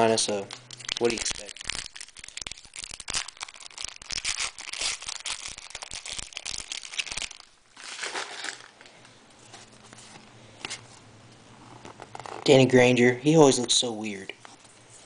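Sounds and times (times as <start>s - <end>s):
quiet foil rustle: 0.2s - 11.0s
foil wrapper crinkling: 0.4s - 9.0s.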